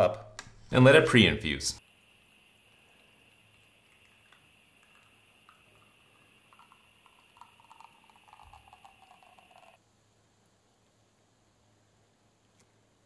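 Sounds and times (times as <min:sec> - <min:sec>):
faint steady hiss: 0:00.0 - 0:13.0
espresso trickling into a glass: 0:02.3 - 0:09.8.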